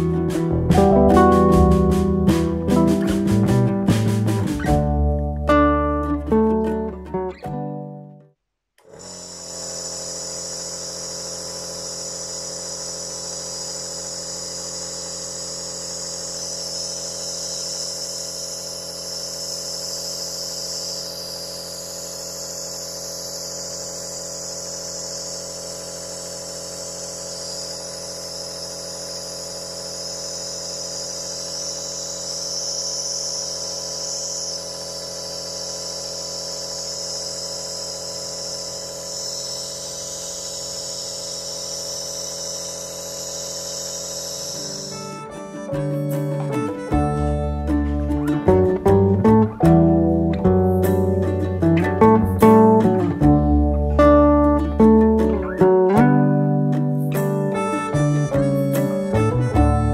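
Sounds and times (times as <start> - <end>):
nebulizer motor hum with air hiss: 8.8 - 47.8, 57.1 - 59.9.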